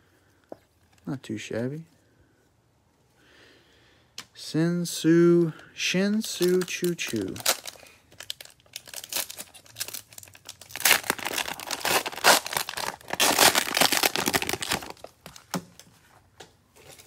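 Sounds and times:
cellophane wrapper crinkling: 0:06.1 - 0:15.5.

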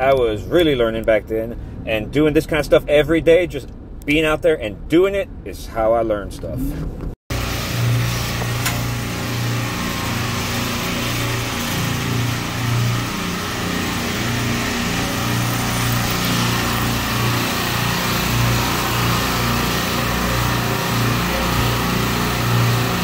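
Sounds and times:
compressors humming: 0:07.3 - 0:23.0.

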